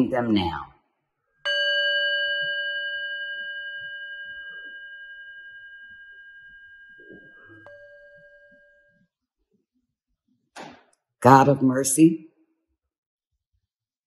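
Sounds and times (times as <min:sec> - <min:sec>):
bell ringing: 0:01.4 - 0:09.0.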